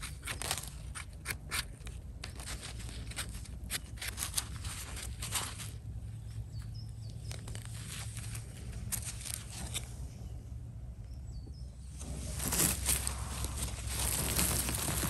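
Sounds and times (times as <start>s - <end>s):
steady low rumble: 1.8s - 15.0s
brush scraping mushroom: 7.4s - 10.1s, 11.9s - 15.0s
faint bird chirps: 10.1s - 12.0s
loud rustle: 11.9s - 15.0s.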